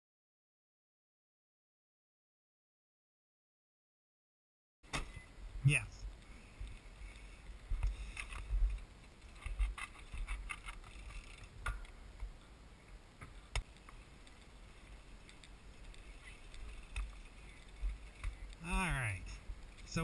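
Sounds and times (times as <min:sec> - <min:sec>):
wind rumbling on microphone: 0:05.2 - 0:20.0.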